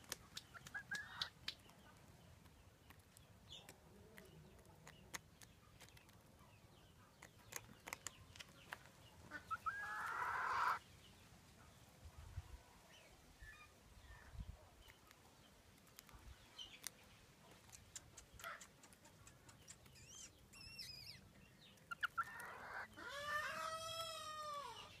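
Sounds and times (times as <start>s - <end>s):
chickens soft calls: 0.0s - 11.2s, 12.1s - 25.0s
chicken rising and falling call: 9.6s - 10.8s, 22.3s - 24.9s.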